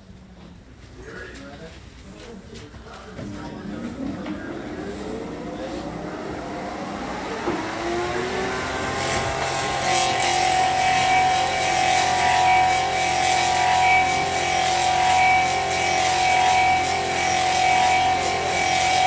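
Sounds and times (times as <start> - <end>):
lathe whining: 3.2 - 19.0
cutters carving wood: 6.9 - 19.0.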